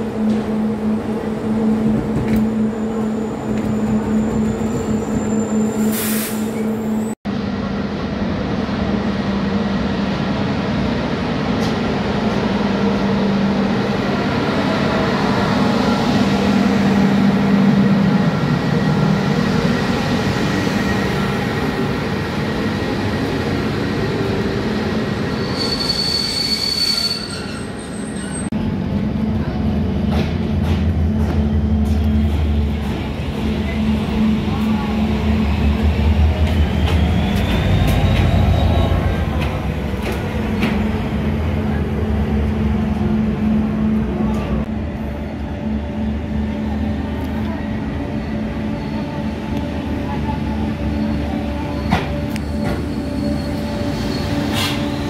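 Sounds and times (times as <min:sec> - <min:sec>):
wheels squealing on rails: 0:02.4 - 0:07.2, 0:24.8 - 0:28.6, 0:33.7 - 0:39.6, 0:48.3 - 0:55.0
electric locomotive humming: 0:27.3 - 0:55.0
train shunting: 0:29.4 - 0:44.7, 0:48.3 - 0:55.0.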